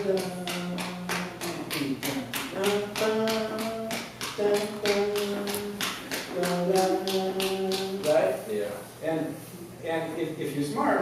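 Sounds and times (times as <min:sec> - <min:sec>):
man singing: 0:00.0 - 0:08.1
drum kit steady tapping: 0:00.0 - 0:08.8.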